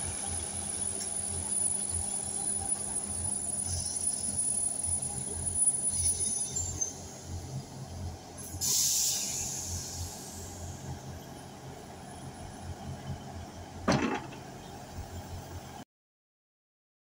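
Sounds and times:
diesel train engines idling: 0:00.0 - 0:15.8
compressed air hiss: 0:08.6 - 0:10.6.

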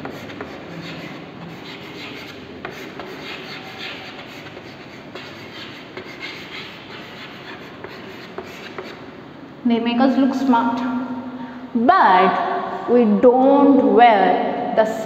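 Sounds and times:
chalk tapping the board: 0:00.0 - 0:09.0
chalk scratching on a chalkboard: 0:00.0 - 0:09.1.

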